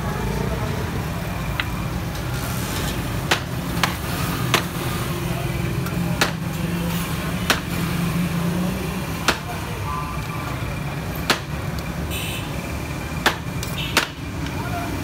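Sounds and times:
low rumble of street noise: 0.0 - 15.0
sharp knocks: 3.2 - 4.7, 11.2 - 11.5, 13.2 - 14.2.

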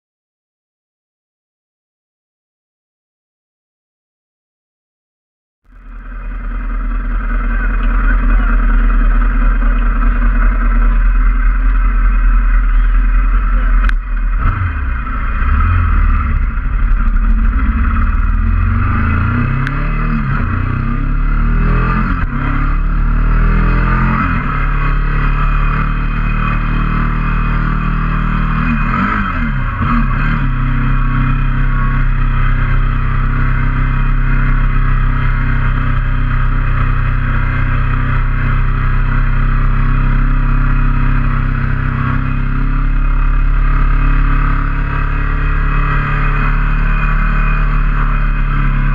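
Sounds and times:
motorcycle engine accelerating: 5.7 - 48.9.

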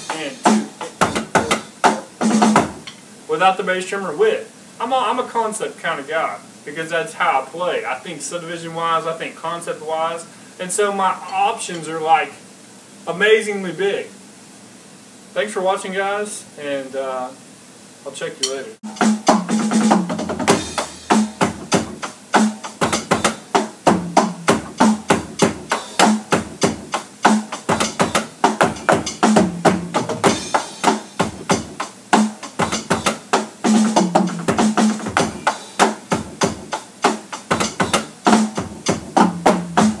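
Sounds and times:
electronic drum kit groove: 0.0 - 3.0, 18.8 - 40.0.

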